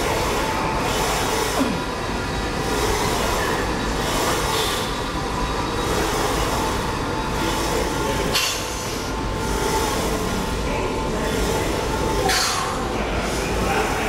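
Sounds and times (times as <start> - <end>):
gym machinery rumble and hiss: 0.0 - 14.0.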